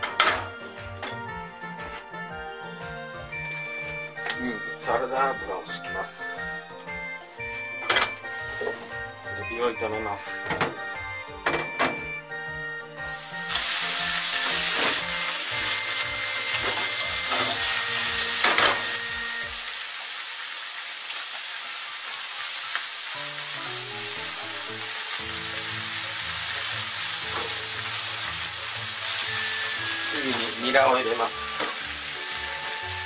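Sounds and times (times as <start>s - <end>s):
shrimp sizzling in a frying pan: 13.1s - 33.0s.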